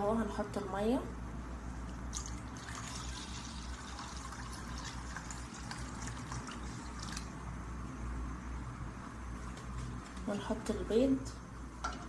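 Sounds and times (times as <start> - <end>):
water pouring into pot: 2.1 - 7.3.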